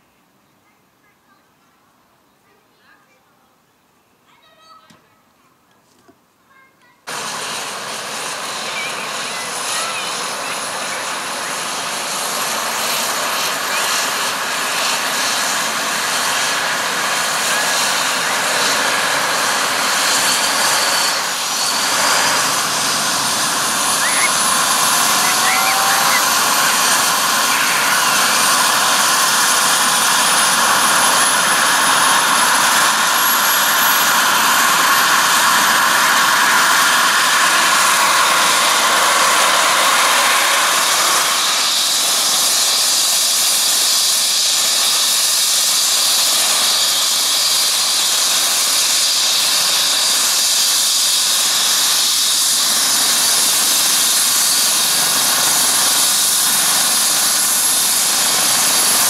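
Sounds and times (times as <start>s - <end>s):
helicopter turbine whine and hiss: 7.1s - 59.0s
high-pitched whine rising: 17.2s - 32.9s.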